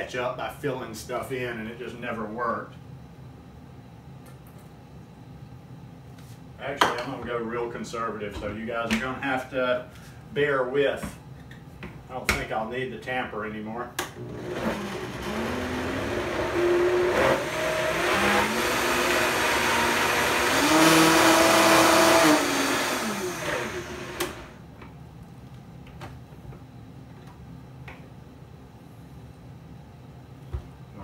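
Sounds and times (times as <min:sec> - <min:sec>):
blender motor whine: 0:14.2 - 0:24.6.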